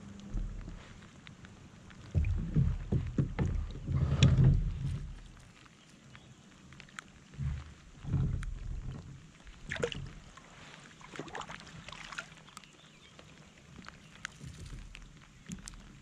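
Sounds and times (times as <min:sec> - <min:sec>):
low bumps against kayak hull: 0:00.2 - 0:01.0, 0:02.0 - 0:05.4, 0:07.4 - 0:10.3
water splashing: 0:06.8 - 0:16.0.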